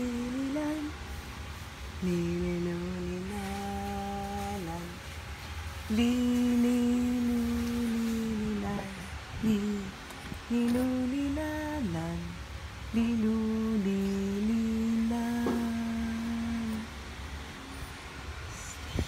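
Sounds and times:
woman humming a lullaby: 0.0s - 1.0s, 2.0s - 5.0s, 5.9s - 12.4s, 13.0s - 17.0s.

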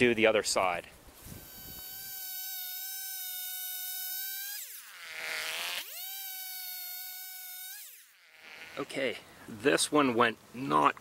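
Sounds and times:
chainsaw cutting log: 1.2s - 9.0s.

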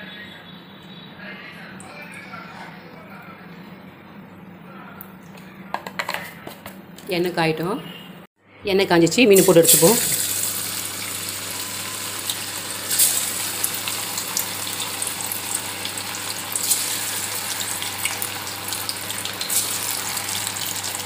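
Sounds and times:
fish deep-frying in oil: 9.4s - 21.0s
oil crackles and pops: 11.8s - 21.0s.

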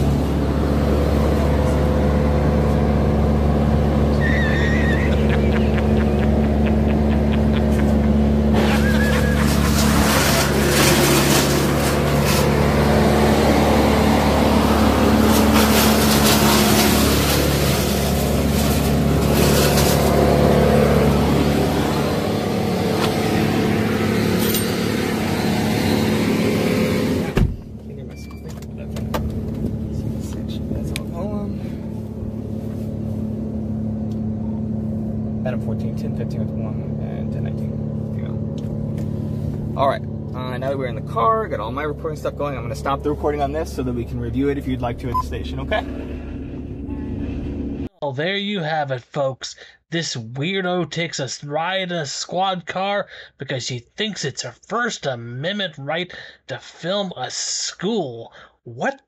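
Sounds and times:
car engine hum: 0.0s - 47.9s
road noise: 0.0s - 47.9s.

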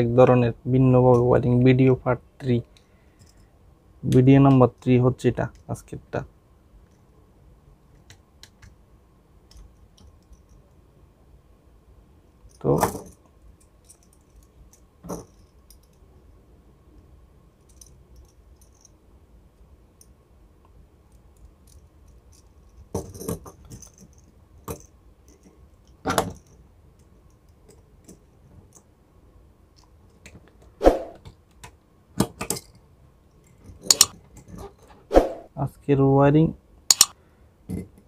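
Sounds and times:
screwdriver clicks and knocks: 36.9s - 37.1s.

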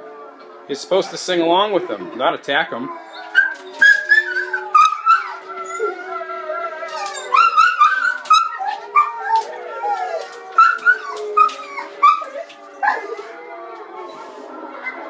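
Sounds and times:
wolves howling from speakers: 0.0s - 15.0s
dog whining and yipping: 2.9s - 6.0s, 6.9s - 13.1s.

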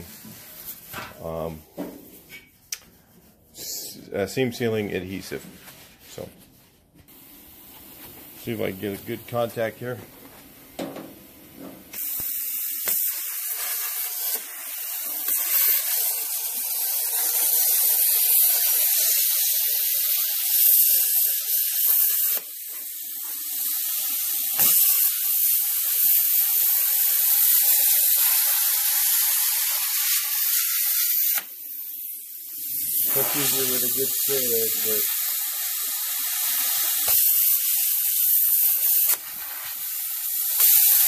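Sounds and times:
plasma cutter hissing: 11.9s - 41.0s.

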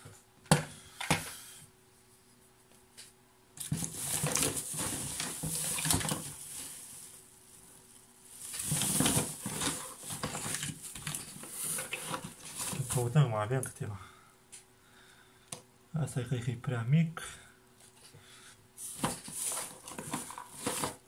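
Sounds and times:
speaker parts rustling and clattering: 2.7s - 7.6s, 8.3s - 13.3s, 18.8s - 21.0s.

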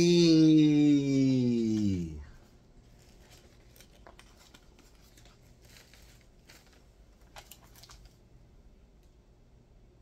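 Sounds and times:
wrapping paper rustling: 2.4s - 8.4s.

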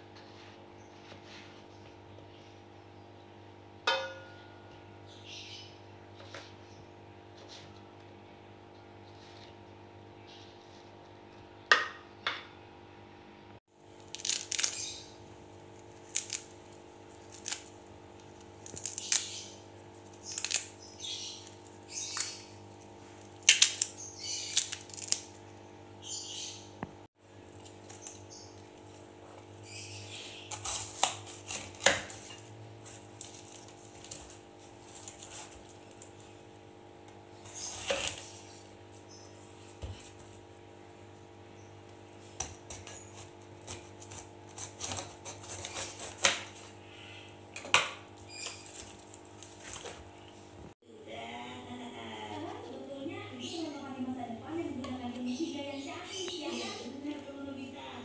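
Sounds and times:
fruit skin cracking and peeling: 13.8s - 25.6s, 27.4s - 36.3s, 37.0s - 39.1s, 42.2s - 46.7s, 47.5s - 50.3s.

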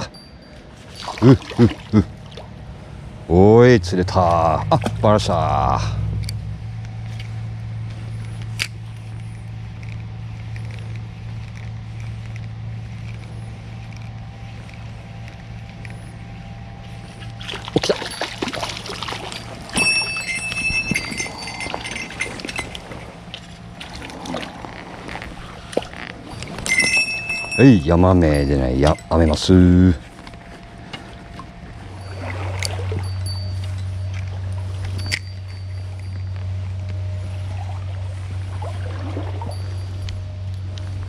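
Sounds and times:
river water rushing: 17.4s - 27.6s.

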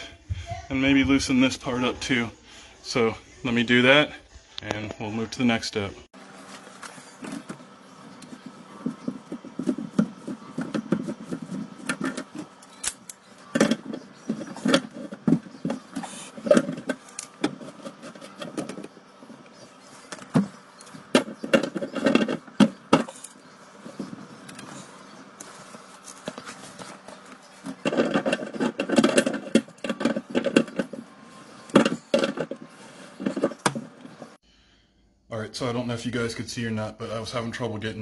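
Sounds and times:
bumping against plastic pipes: 7.2s - 12.6s, 13.4s - 19.4s, 20.1s - 34.4s.

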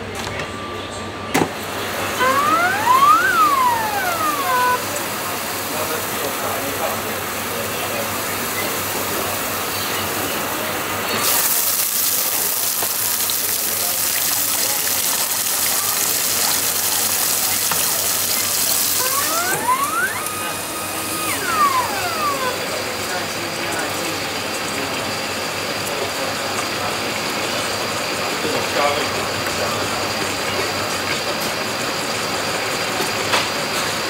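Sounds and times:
electric motor whining: 2.0s - 5.4s, 17.4s - 23.1s
food sizzling in hot oil: 11.2s - 20.1s.

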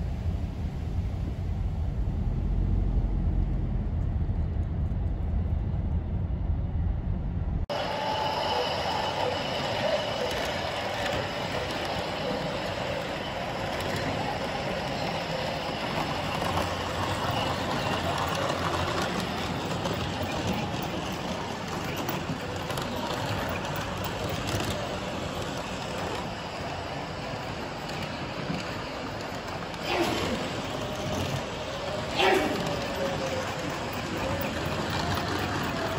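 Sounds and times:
model trains rolling rumble: 7.7s - 35.9s.

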